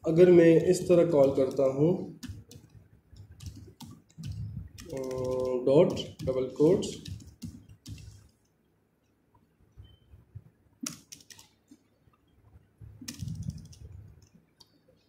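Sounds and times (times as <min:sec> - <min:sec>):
keyboard typing: 0:00.2 - 0:08.4, 0:10.8 - 0:11.6, 0:13.0 - 0:14.8.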